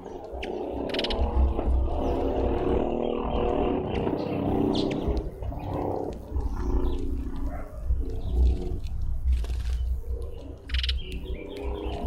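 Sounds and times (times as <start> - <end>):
dove cooing: 0.0 - 8.8
high bird calls: 0.0 - 8.8, 9.5 - 12.0
low microphone rumble: 0.0 - 12.0.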